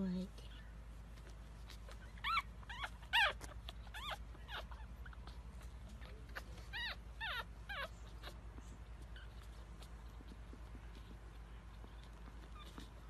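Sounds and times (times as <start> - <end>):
puppies squeaking and whimpering: 1.2 - 13.0.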